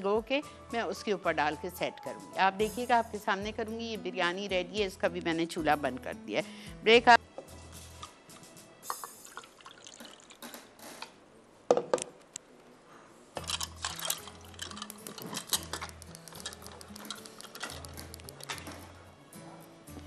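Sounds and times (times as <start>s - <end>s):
plastic cups and glassware clinking: 13.4s - 18.8s.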